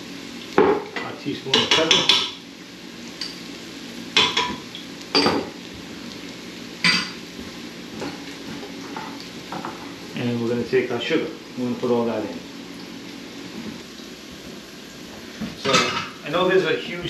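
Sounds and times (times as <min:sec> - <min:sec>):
onions sizzling in oil: 0:00.0 - 0:17.0
metal kitchenware clinking: 0:15.6 - 0:16.2.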